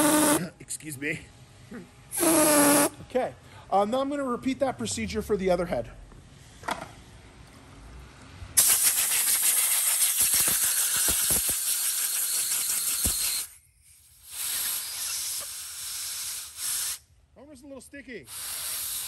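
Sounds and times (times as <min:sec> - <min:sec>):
compressed air hissing: 0:00.0 - 0:00.4, 0:02.1 - 0:03.0, 0:08.6 - 0:17.1, 0:18.2 - 0:19.0.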